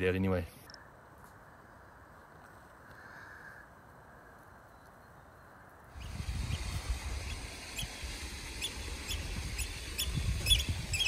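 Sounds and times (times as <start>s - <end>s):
wind rumble on microphone: 5.9s - 11.0s.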